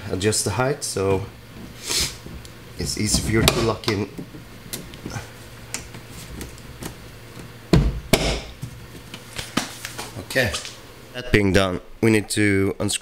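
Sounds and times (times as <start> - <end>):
strut knocking into place: 7.7 - 8.6.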